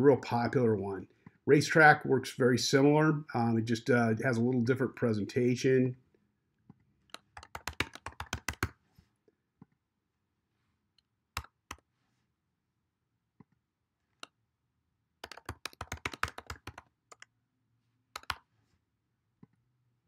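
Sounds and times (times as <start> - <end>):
computer keyboard typing: 7.1 - 8.8, 15.2 - 17.3, 18.2 - 18.4.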